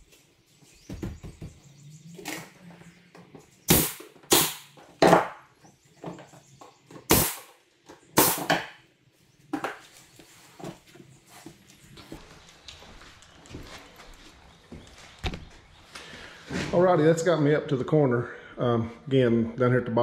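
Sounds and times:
nail gun firing: 0:03.7 - 0:05.4, 0:07.1 - 0:07.6, 0:08.2 - 0:08.8.

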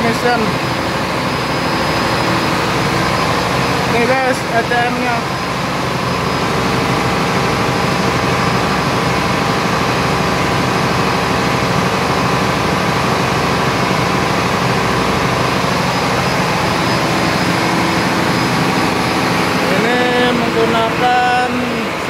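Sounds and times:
diesel generator running: 0:00.0 - 0:22.0.

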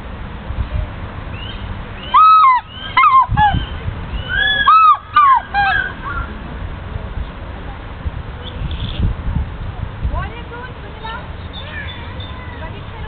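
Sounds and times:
eagle calling with ringing yelps: 0:01.4 - 0:06.3.

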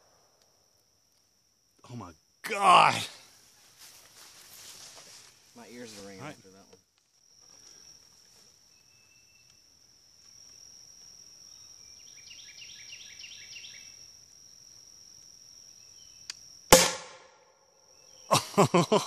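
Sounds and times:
high insect drone: 0:00.0 - 0:19.0
insect chirps: 0:00.0 - 0:19.0
rocket launcher blast: 0:16.7 - 0:17.3.

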